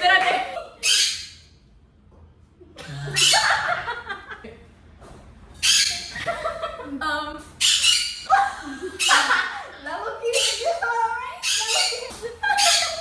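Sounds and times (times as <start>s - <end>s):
women shrieking and laughing: 8.2s - 9.8s, 11.6s - 13.0s.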